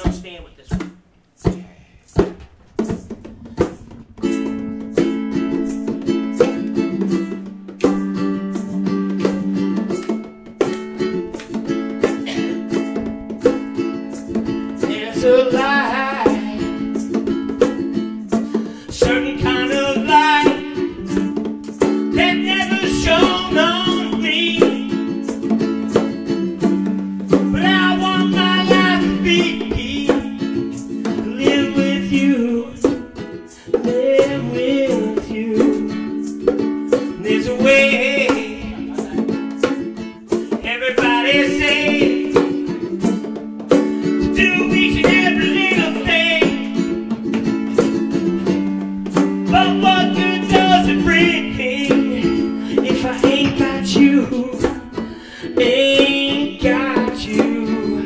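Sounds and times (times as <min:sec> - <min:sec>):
bongos: 0:00.0 - 0:58.0
strummed acoustic string instrument: 0:00.0 - 0:58.0
man singing: 0:14.8 - 0:17.2, 0:18.8 - 0:21.4, 0:22.0 - 0:25.1, 0:27.4 - 0:36.3, 0:37.0 - 0:39.5, 0:40.5 - 0:42.8, 0:44.2 - 0:47.0, 0:49.4 - 0:58.0.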